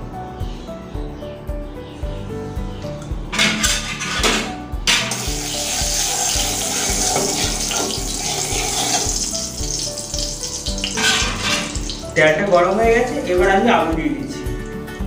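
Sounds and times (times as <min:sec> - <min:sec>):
spatula scraping: 0:03.3 - 0:09.9, 0:10.6 - 0:12.1
oil sizzling: 0:04.8 - 0:13.6.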